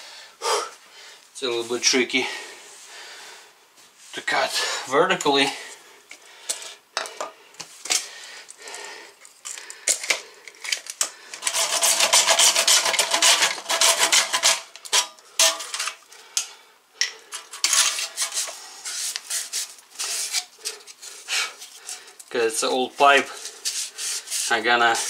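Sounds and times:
hand saw cutting plastic pipe: 11.3s - 15.9s, 17.3s - 22.0s, 23.2s - 25.0s.

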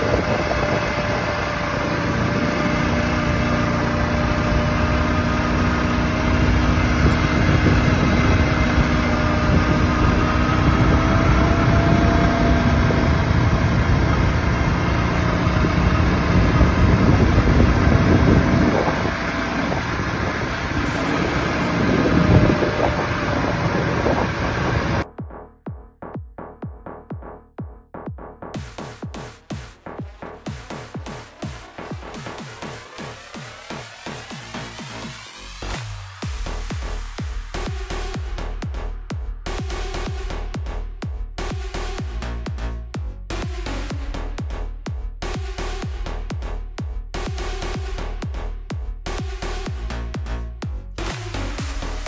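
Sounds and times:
quad bike engine running: 0.0s - 25.5s, 28.6s - 52.0s
electronic dance music: 20.8s - 23.4s, 25.0s - 52.0s.

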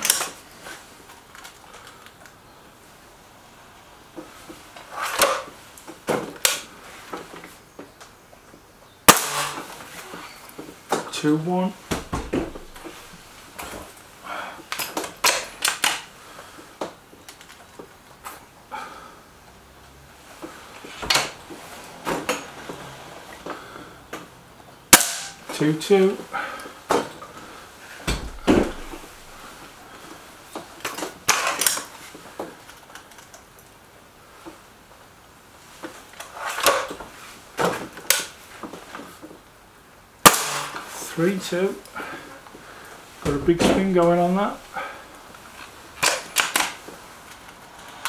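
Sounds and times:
thud: 11.9s - 12.9s, 28.0s - 29.4s
air rifle mechanical clicks: 14.7s - 16.1s, 45.6s - 47.6s.

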